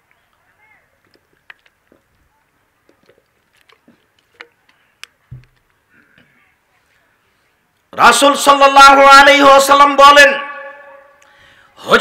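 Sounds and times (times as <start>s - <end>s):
plastic bottle crinkling: 2.8s - 5.7s.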